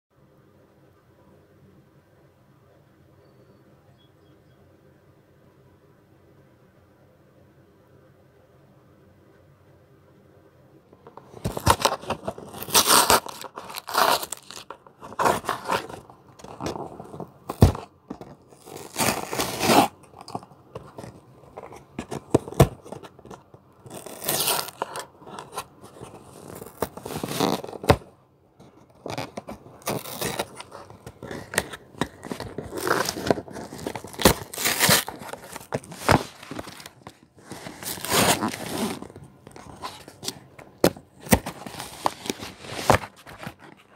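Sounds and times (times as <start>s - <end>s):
cardboard box tearing and crunching: 11.2s - 28.1s, 28.9s - 43.8s.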